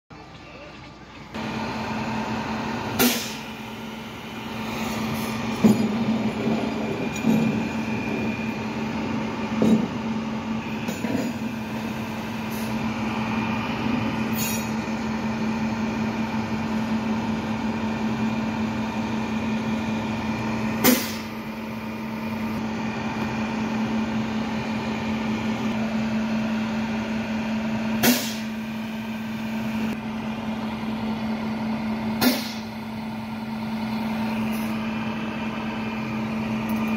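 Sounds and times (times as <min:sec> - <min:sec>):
truck engine humming: 0:00.1 - 0:36.9
short sharp air hisses: 0:03.0 - 0:03.5, 0:14.3 - 0:14.7, 0:20.8 - 0:21.3, 0:28.0 - 0:28.5
clunks: 0:05.1 - 0:08.4, 0:09.5 - 0:10.1.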